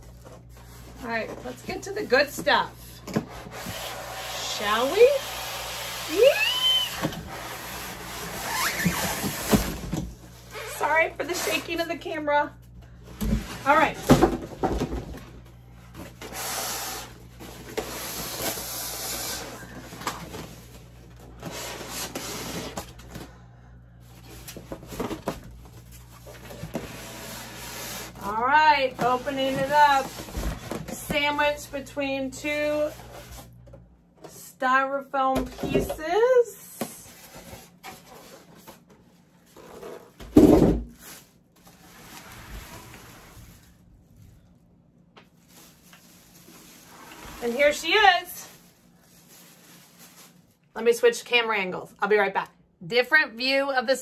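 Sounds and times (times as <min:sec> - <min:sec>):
styrofoam rubbing and scraping: 0:06.3 - 0:09.8, 0:10.4 - 0:11.9, 0:16.2 - 0:19.8, 0:21.4 - 0:22.8, 0:26.3 - 0:30.6, 0:45.5 - 0:50.5
plastic wrapping rustling: 0:40.8 - 0:44.6, 0:45.2 - 0:51.0.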